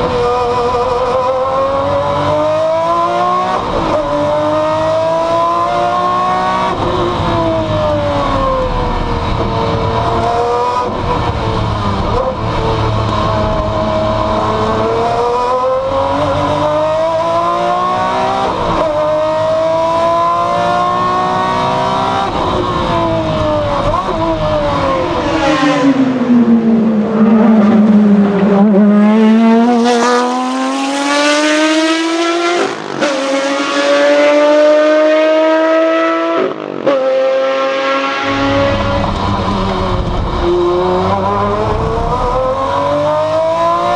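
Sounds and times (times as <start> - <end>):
race car engine revving: 0.0 - 43.9
race car passing by: 24.2 - 43.8.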